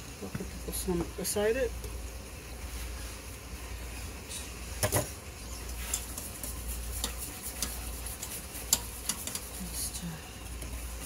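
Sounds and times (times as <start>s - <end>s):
light sizzle in frying pan: 0.0s - 11.0s
whisk stirring in saucepan: 5.7s - 11.0s
metal tongs clattering on pan: 5.8s - 6.4s, 7.0s - 9.6s.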